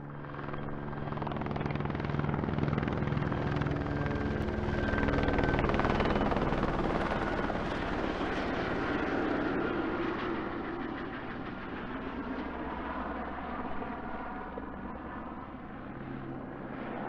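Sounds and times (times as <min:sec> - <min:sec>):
helicopter engine drone: 0:00.0 - 0:17.0
helicopter rotor chop: 0:00.3 - 0:12.6.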